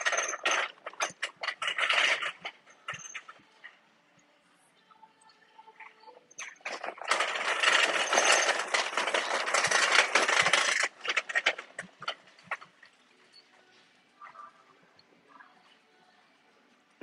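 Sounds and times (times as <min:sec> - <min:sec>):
metal clanks and knocks: 0:00.0 - 0:03.4, 0:06.4 - 0:12.9
shopping cart rolling on tiles: 0:00.0 - 0:03.8, 0:05.8 - 0:15.5.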